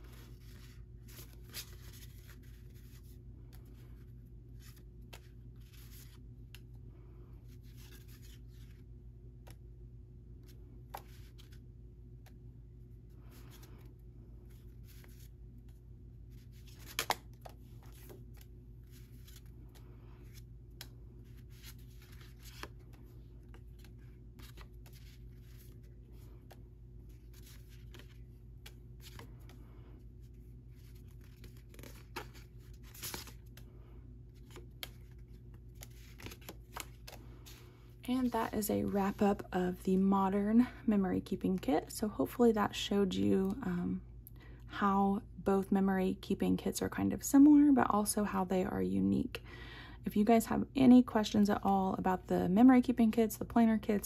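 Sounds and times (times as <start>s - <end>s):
paper cards rustling: 0.0s - 6.7s, 7.4s - 9.6s, 10.4s - 12.4s, 13.2s - 39.5s
low steady hum: 0.0s - 54.0s.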